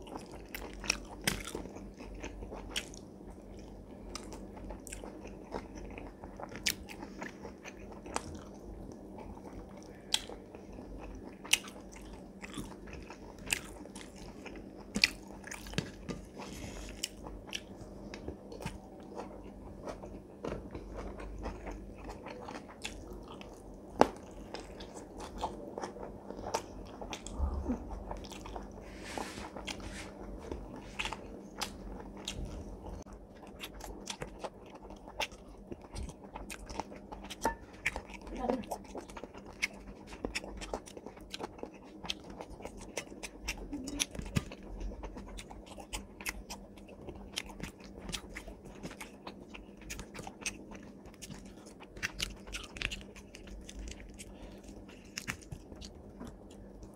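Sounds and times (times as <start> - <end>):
wet chewing and lip smacking: 29.6 - 56.9.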